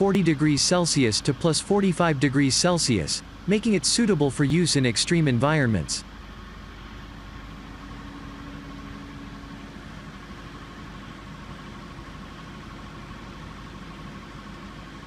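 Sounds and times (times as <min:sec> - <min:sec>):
faint high whine: 0:00.0 - 0:15.0
heavy machinery engine running: 0:00.0 - 0:15.0.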